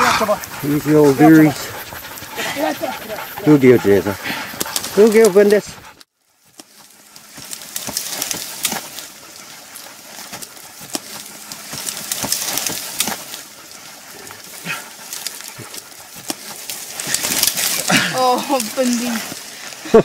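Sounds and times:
scrub rustling: 0.0s - 20.0s
twigs cracking and snapping: 6.4s - 19.8s.

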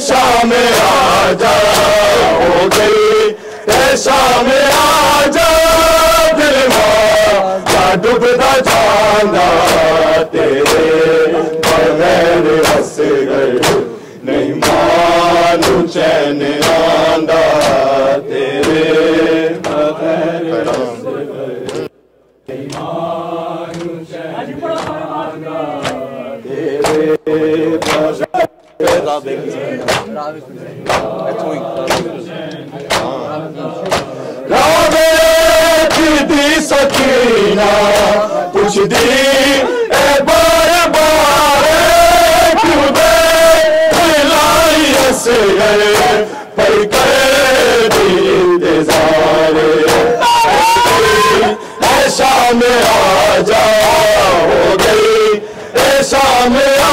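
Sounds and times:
crowd of men chanting: 0.0s - 21.9s, 22.5s - 56.9s
hands slapping chests: 2.6s - 3.0s, 3.7s - 5.0s, 6.6s - 13.9s, 14.6s - 15.0s, 15.6s - 15.9s, 16.5s - 19.0s, 19.6s - 19.9s, 20.6s - 20.9s, 21.6s - 21.9s, 22.5s - 23.0s, 23.7s - 24.0s, 24.7s - 25.1s, 25.8s - 26.1s, 26.7s - 27.2s, 27.8s - 29.1s, 29.8s - 30.1s, 30.8s - 33.1s, 33.8s - 34.2s, 34.8s - 37.2s, 37.8s - 40.2s, 41.9s - 45.2s, 45.9s - 46.3s, 47.9s - 48.2s, 48.9s - 53.1s.

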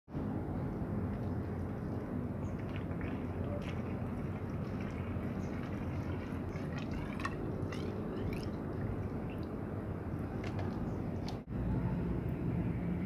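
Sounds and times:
low background rumble: 0.1s - 13.0s
water trickling into a hose: 1.1s - 9.7s.

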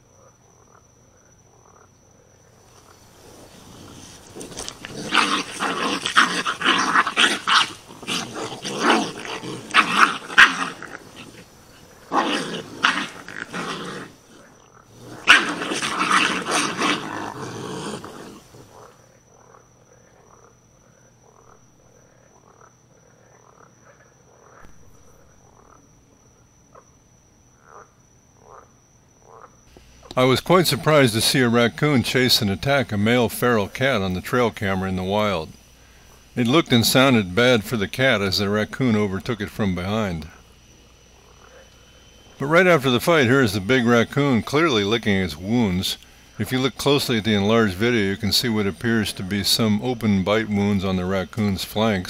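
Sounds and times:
frogs croaking: 0.0s - 52.0s
animals fighting screams and growls: 3.1s - 18.9s.

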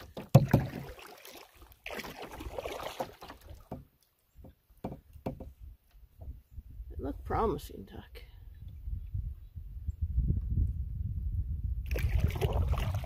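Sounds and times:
paddle swishing through water: 0.0s - 5.7s, 11.9s - 13.0s.

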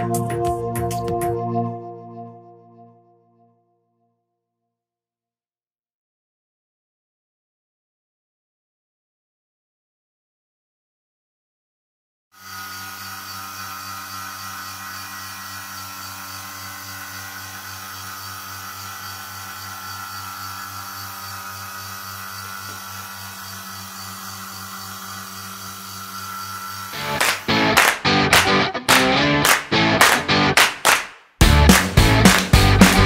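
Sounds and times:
vacuum pump humming: 12.4s - 28.6s
guitar music: 27.0s - 30.8s, 31.4s - 33.0s.

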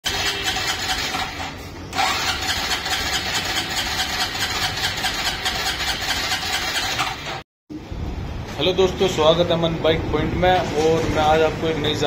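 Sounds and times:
motorcycle engine revving: 0.1s - 7.4s.

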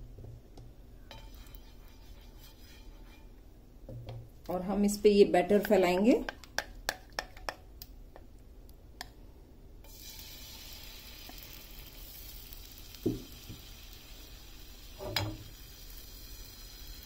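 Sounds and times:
batter sizzling: 1.0s - 3.4s, 9.8s - 17.0s.

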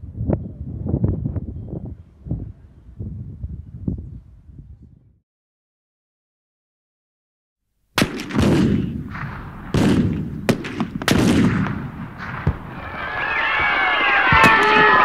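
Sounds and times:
cannon booms: 8.0s - 13.0s, 13.6s - 15.0s
gunshots: 8.0s - 15.0s
men shouting: 12.8s - 15.0s.

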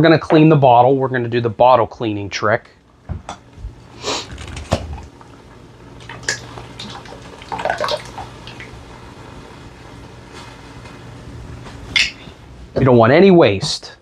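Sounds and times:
water sloshing in bottle: 6.0s - 8.8s.

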